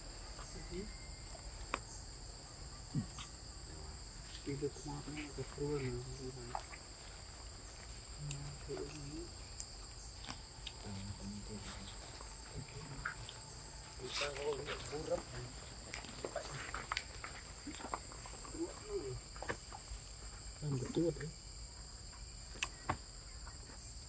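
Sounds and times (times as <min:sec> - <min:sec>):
insects droning: 0:00.0 - 0:24.0.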